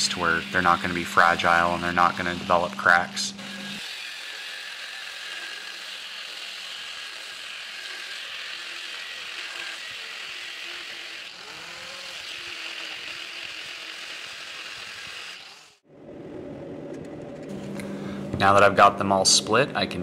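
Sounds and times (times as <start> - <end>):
angle grinder cutting steel: 0.0 - 15.8.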